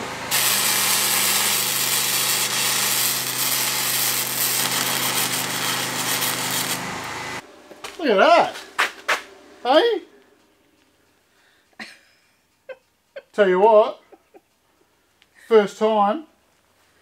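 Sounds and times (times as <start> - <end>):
welding arc crackling and hissing: 0.0 - 7.0.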